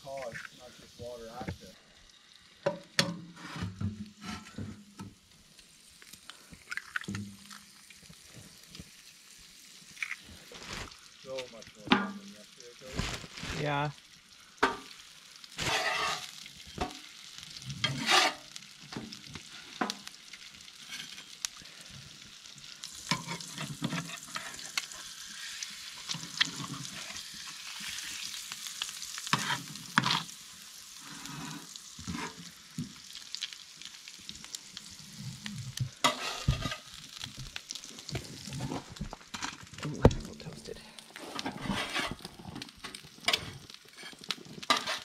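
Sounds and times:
eggs sizzling in a skillet: 0:00.0 - 0:45.0
metal utensil scraping a pan: 0:03.0 - 0:04.8, 0:15.6 - 0:17.0, 0:17.8 - 0:19.1, 0:20.8 - 0:21.4, 0:23.1 - 0:28.3, 0:29.2 - 0:30.3, 0:31.0 - 0:32.5, 0:36.0 - 0:37.0, 0:41.2 - 0:45.0.

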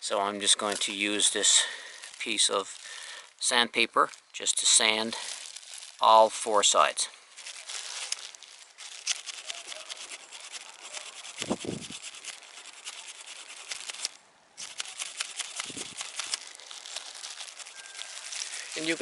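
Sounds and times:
plastic gloves crinkling: 0:00.5 - 0:19.0
sandpaper scraping metal: 0:08.8 - 0:19.0.

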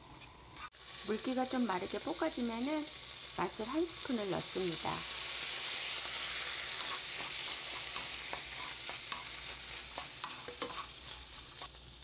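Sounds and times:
squid sizzling in oil: 0:00.0 - 0:12.0
spatula scraping and tapping pan: 0:06.8 - 0:11.7.

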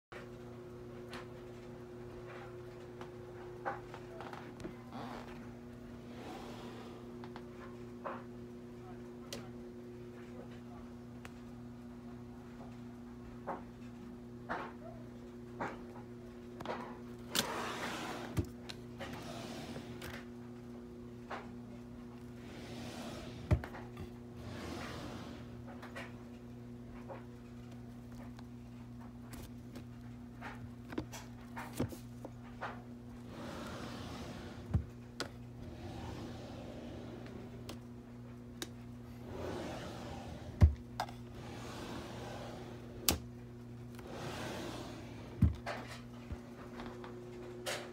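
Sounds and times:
steady low hum: 0:00.2 - 0:47.9
drawers sliding open and shut: 0:05.1 - 0:07.8, 0:16.7 - 0:20.3, 0:22.2 - 0:26.2, 0:30.4 - 0:37.8, 0:39.0 - 0:47.9.

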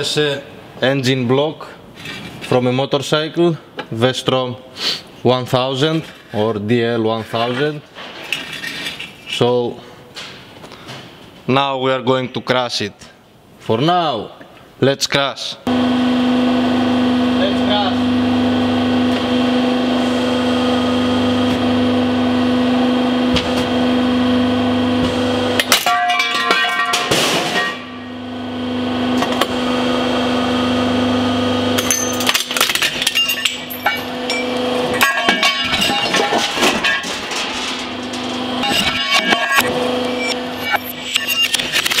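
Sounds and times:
hydraulic press pump humming: 0:15.7 - 0:26.0, 0:26.8 - 0:42.0.

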